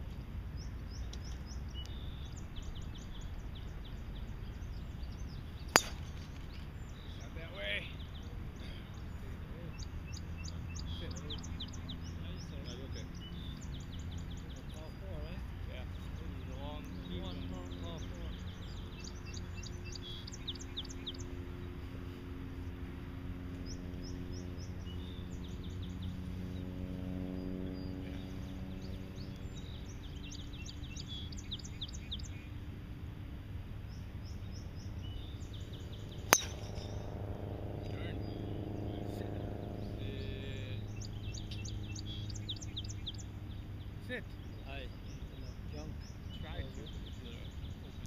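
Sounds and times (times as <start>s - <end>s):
birds chirping: 0.0s - 48.0s
low steady hum: 0.0s - 48.0s
golf club striking ball: 5.6s - 6.8s, 36.0s - 38.0s.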